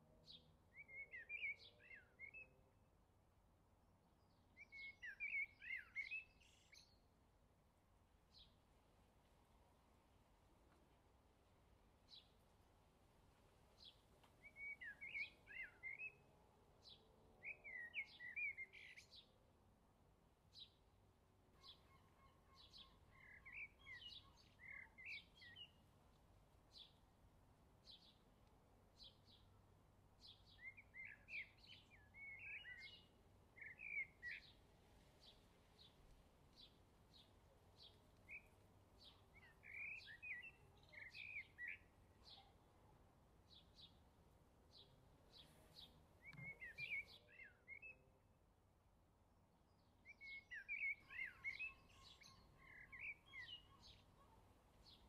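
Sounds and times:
bird chirps: 0.2 - 2.6, 4.3 - 7.0, 13.8 - 16.2, 16.8 - 19.3, 21.6 - 25.8, 30.2 - 34.6, 35.2 - 42.6, 44.7 - 48.1, 49.8 - 55.0
bird warbling song: 4.6 - 7.0, 13.8 - 16.2, 21.6 - 25.8, 30.2 - 34.6, 35.2 - 42.6, 44.7 - 48.0, 49.8 - 55.0.

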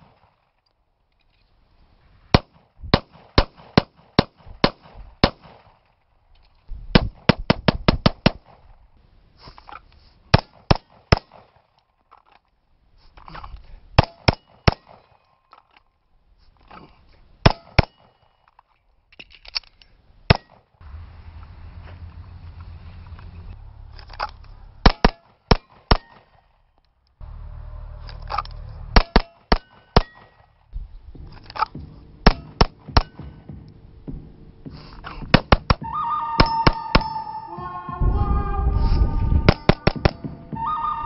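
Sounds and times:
pistol gunshots: 2.3 - 5.8, 14.0 - 15.2, 29.0 - 30.3, 31.6 - 33.5, 35.3 - 35.8.

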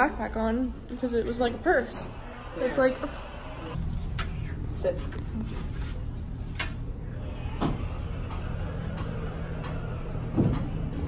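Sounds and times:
elevator car humming: 6.4 - 11.0.

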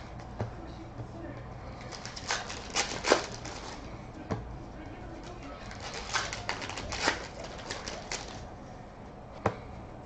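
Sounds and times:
trading cards shuffled by hand: 1.8 - 3.8, 5.6 - 8.4.

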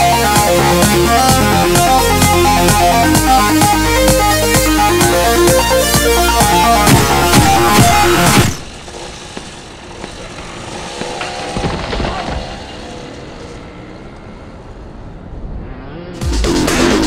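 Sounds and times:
minibike engines revving: 0.0 - 17.0
sudden loud hit: 6.7 - 8.7.

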